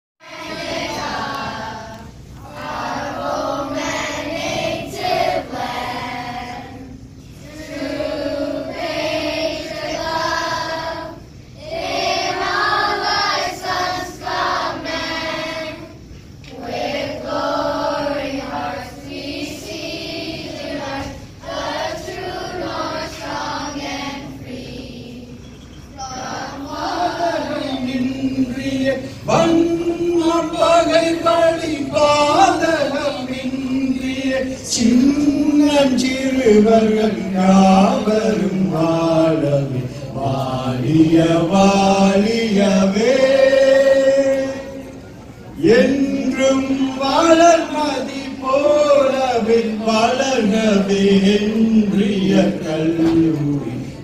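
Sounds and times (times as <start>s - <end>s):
children's choir singing: 0.2s - 54.0s.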